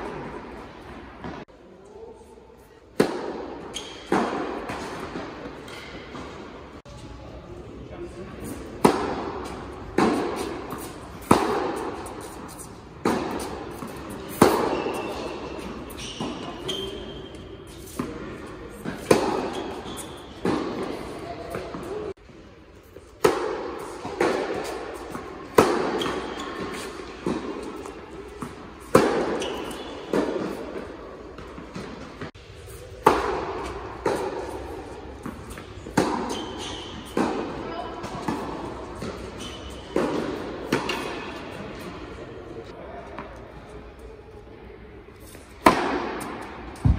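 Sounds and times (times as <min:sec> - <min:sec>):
tennis ball hit by racket: 0:03.0 - 0:06.4, 0:08.8 - 0:17.0, 0:17.7 - 0:21.9, 0:23.2 - 0:41.9, 0:45.6 - 0:46.9
shoe squeak on court: 0:03.7 - 0:04.1, 0:14.6 - 0:17.9, 0:19.4 - 0:20.4, 0:25.9 - 0:27.0, 0:29.2 - 0:30.2, 0:36.2 - 0:37.2, 0:39.0 - 0:40.0
ball bouncing on hard court: 0:45.6 - 0:46.9.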